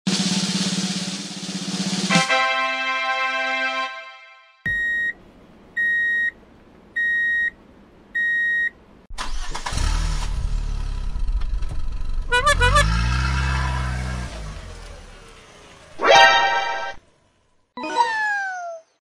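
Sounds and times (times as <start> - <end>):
car engine sound effect: 11.9 - 18.6.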